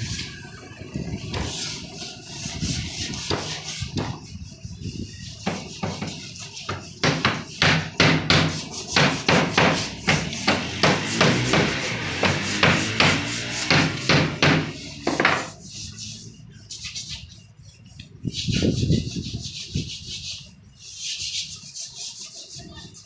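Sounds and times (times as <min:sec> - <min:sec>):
sharp wooden knocks: 0:05.4 - 0:15.6.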